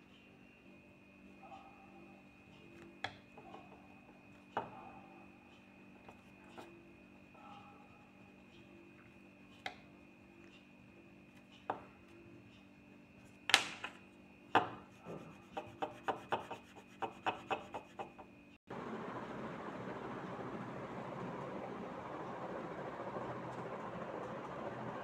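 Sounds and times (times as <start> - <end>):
crayon knocking on paper: 14.6 - 18.3.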